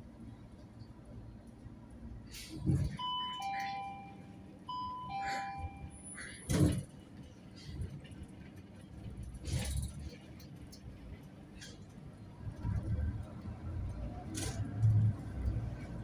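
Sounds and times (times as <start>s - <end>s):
bus engine rumble: 0.0s - 16.0s
bus stop-request chime: 2.8s - 6.4s.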